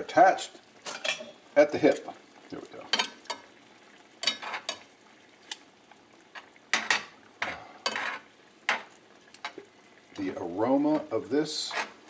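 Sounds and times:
spoon scraping metal skillet: 4.2s - 5.6s, 6.3s - 9.6s, 10.2s - 12.0s.

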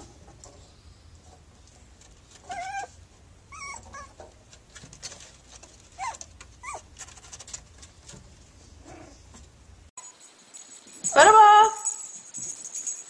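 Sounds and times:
puppy whimpering: 2.5s - 4.2s, 6.0s - 6.9s.

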